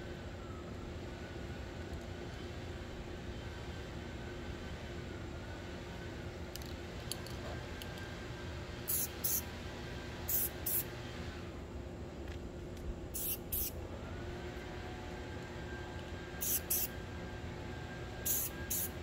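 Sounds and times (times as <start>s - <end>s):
spray paint can hissing: 8.9s - 9.5s, 10.3s - 10.9s, 13.1s - 13.8s, 16.4s - 16.9s, 18.2s - 19.0s.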